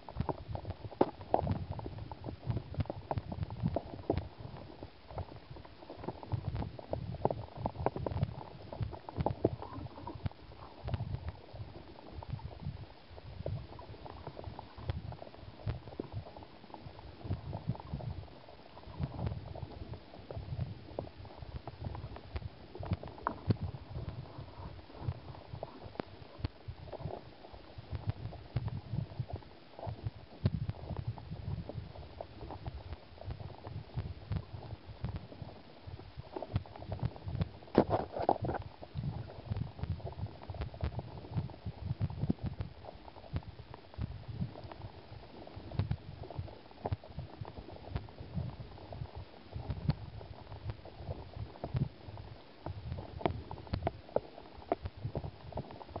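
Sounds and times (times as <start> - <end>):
underwater current rumbling: 0.0 - 56.0.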